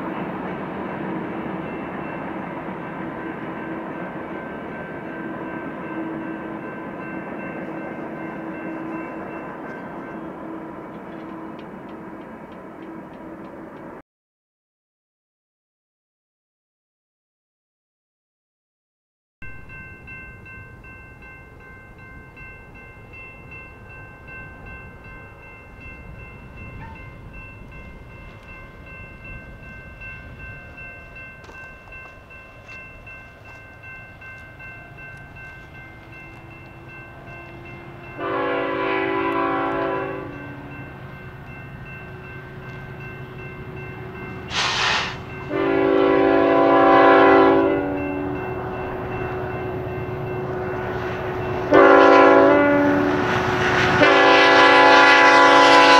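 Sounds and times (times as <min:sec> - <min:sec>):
diesel locomotive engine rumble: 0:19.5 - 0:55.9
train air horn blasts: 0:37.8 - 0:40.7, 0:44.5 - 0:48.4, 0:50.5 - 0:55.9.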